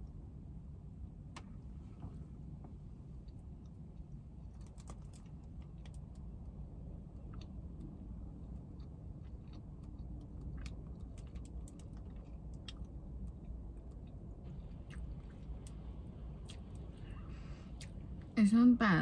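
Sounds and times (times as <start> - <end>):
steady low rumble: 0.0 - 19.0
person chewing crunchy food: 7.0 - 18.2.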